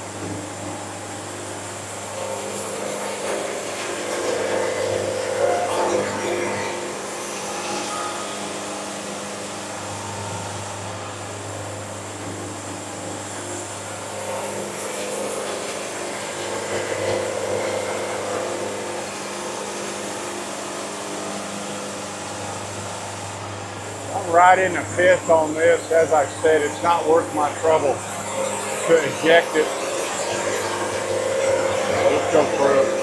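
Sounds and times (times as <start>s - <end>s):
band saw cutting log: 23.9s - 33.0s.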